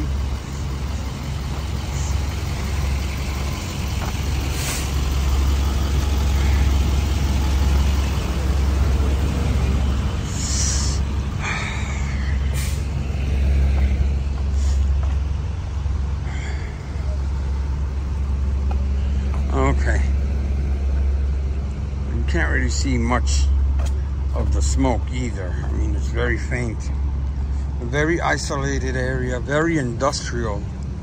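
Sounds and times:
emergency vehicles idling: 0.0 - 31.0
air brake hisses: 4.5 - 5.0, 12.4 - 13.0.

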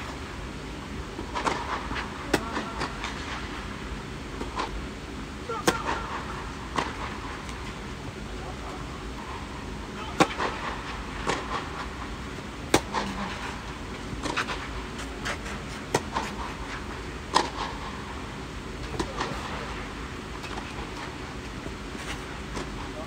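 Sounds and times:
tennis ball struck by rackets: 1.2 - 3.2, 5.6 - 7.6, 10.2 - 11.9, 12.7 - 13.5, 15.9 - 16.4, 17.3 - 17.8.

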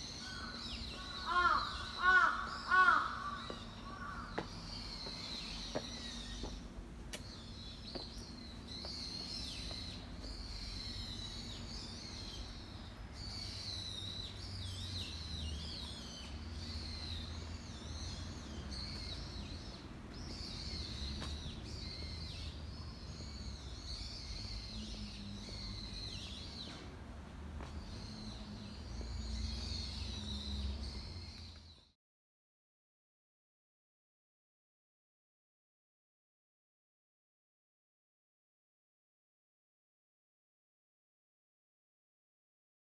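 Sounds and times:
small birds twittering: 0.0 - 32.0.

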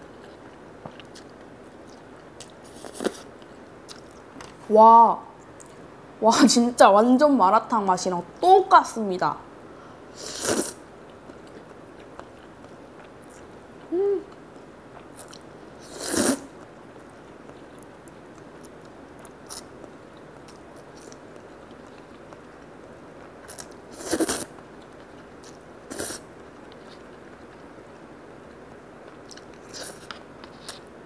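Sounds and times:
soft chewing: 0.1 - 4.6, 11.0 - 15.5, 16.6 - 30.9.

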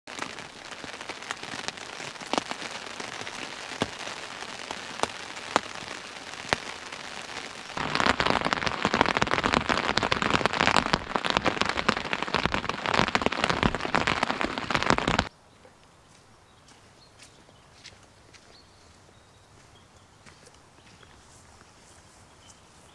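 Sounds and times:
rain pattering on a tent: 0.0 - 15.3
heavy raindrops ticking: 0.1 - 15.3
faint outdoor background: 15.3 - 22.9.

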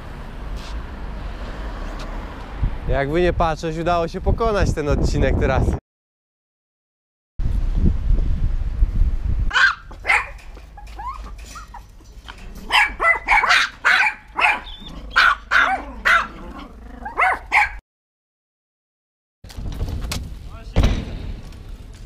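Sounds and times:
small dogs yapping: 9.5 - 17.8.

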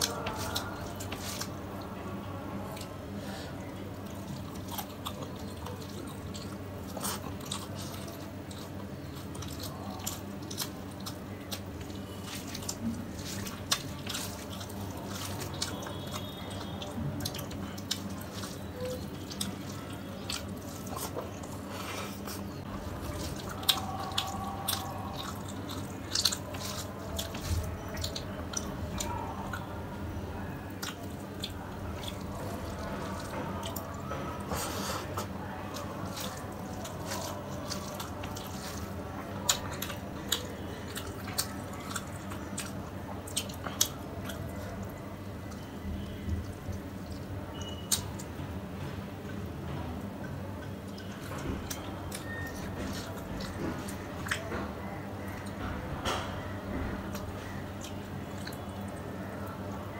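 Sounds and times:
faint low hum: 0.0 - 59.9
fingers squishing wet rice: 2.7 - 48.3.

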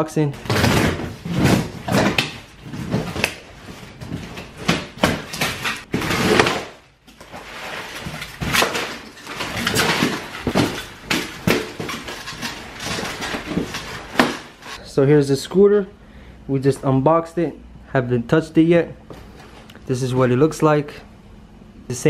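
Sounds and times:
packing paper rustling: 0.4 - 14.8.

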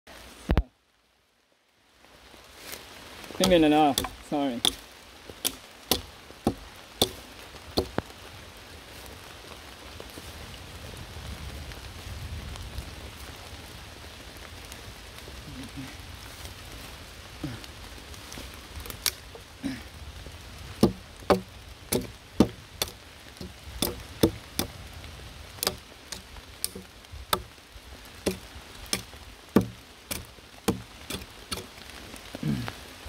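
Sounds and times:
fat crackling and popping: 2.7 - 8.4, 17.4 - 33.0.

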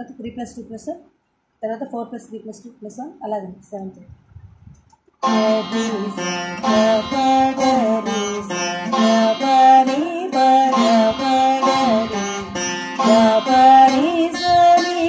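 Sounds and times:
plucked veena notes with pitch bends: 5.2 - 15.0.

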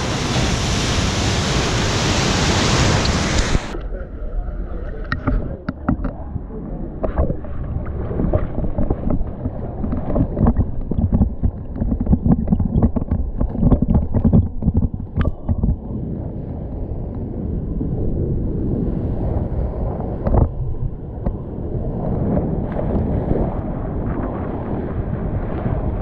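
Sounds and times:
water rushing and splashing: 0.0 - 3.9, 4.8 - 17.0
low rumbling microphone buffeting: 0.0 - 26.0.

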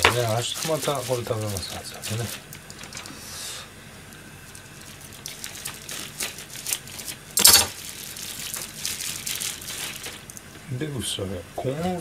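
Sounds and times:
small clicks and rustles: 4.5 - 10.5.

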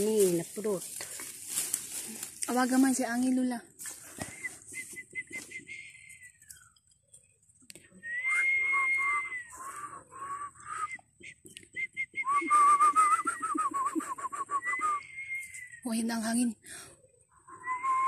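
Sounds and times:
woman whistling a tune: 4.2 - 6.3, 8.0 - 15.9, 17.5 - 18.0.

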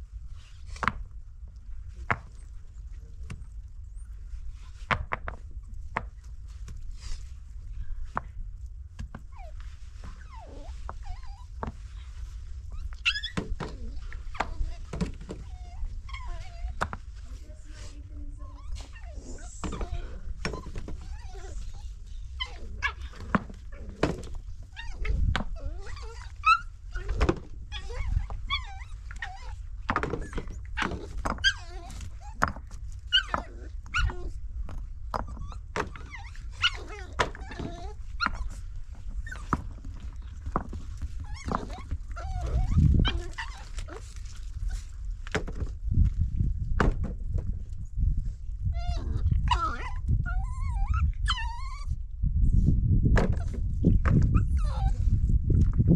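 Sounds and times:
steady low rumble: 0.0 - 13.1, 13.7 - 55.9
dog barking and crying: 12.8 - 16.8, 18.4 - 32.5, 33.1 - 34.4, 35.3 - 38.6, 41.3 - 44.0, 48.8 - 51.9.

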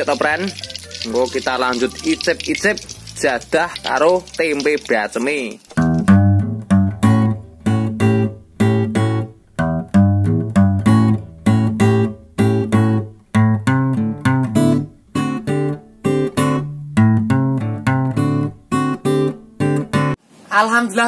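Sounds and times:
acoustic guitar chords: 5.8 - 20.2.

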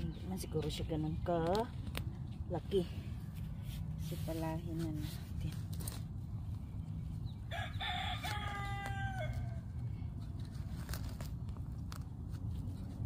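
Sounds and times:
rooster crowing: 7.5 - 9.8.

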